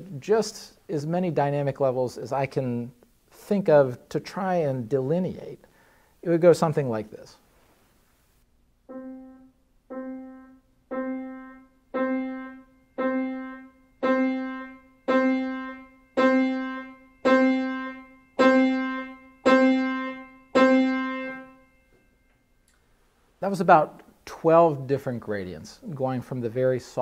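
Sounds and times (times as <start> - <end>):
piano note struck: 8.9 - 21.7.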